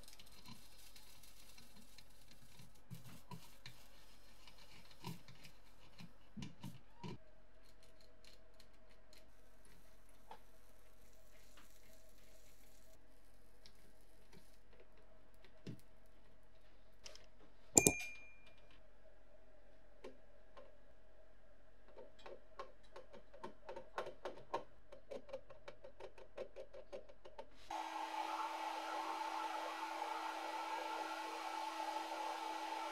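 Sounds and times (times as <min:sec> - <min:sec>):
hot air gun blowing: 0:27.7 - 0:32.9.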